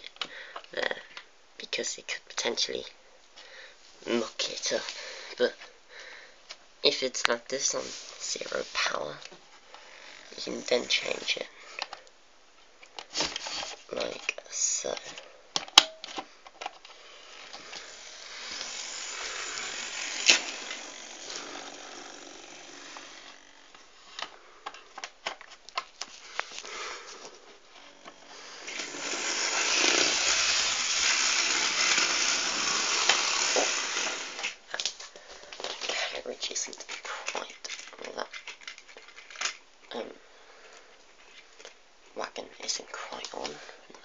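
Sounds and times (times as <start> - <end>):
model train motor running: 17.2 - 23.8, 27.9 - 34.6.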